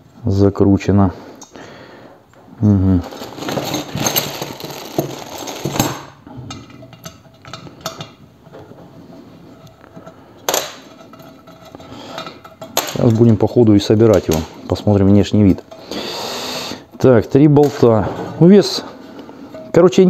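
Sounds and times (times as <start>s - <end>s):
metal parts clinking: 3.0s - 8.6s, 9.5s - 15.9s.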